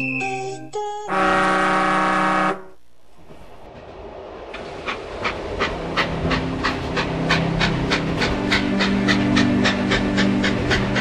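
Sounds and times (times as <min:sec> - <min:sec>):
steam locomotive whistle: 0:01.1 - 0:02.7.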